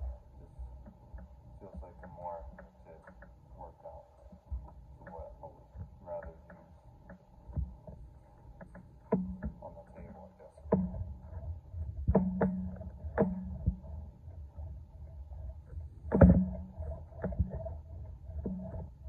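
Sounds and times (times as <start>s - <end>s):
knocks and clunks of cable machine: 8.6s - 13.9s, 16.1s - 17.7s.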